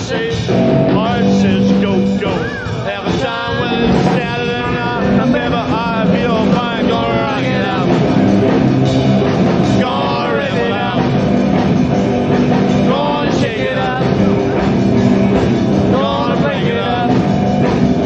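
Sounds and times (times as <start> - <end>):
man singing: 0.0 - 8.2, 9.5 - 11.3, 12.5 - 14.5, 15.4 - 17.8
rock band playing live: 0.0 - 18.0.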